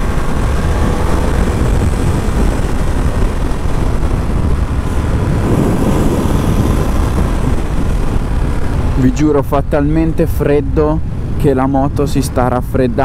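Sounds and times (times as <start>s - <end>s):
motorcycle engine cruising: 0.0s - 10.1s
wind noise: 0.0s - 13.0s.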